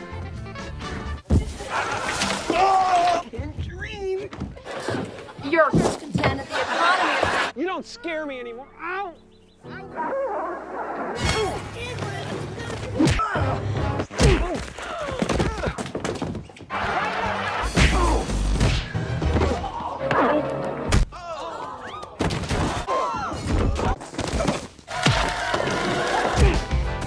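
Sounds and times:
music: 0.0 - 2.6, 7.6 - 14.4, 16.7 - 21.0, 25.0 - 27.0.

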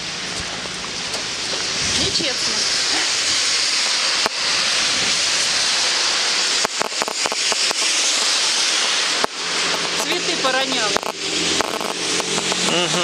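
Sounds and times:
heavy rain in wind: 0.0 - 13.0.

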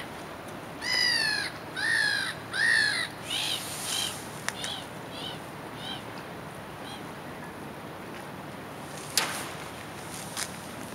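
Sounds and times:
gulls screeching: 0.8 - 6.1.

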